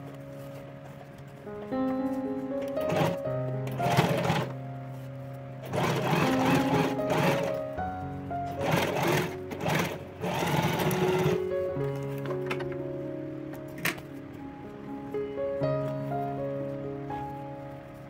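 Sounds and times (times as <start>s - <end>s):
background music: 0.0s - 18.0s
electric sewing machine stitching: 2.9s - 3.2s, 3.8s - 4.5s, 5.6s - 7.6s, 8.6s - 11.4s.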